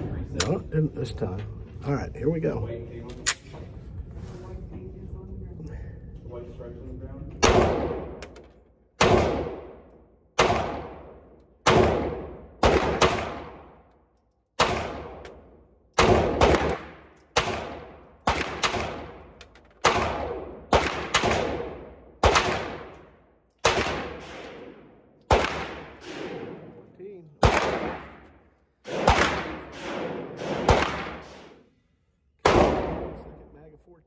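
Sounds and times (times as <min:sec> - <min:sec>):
pistol shots echoing indoors: 0:07.4 - 0:31.8, 0:32.4 - 0:33.4.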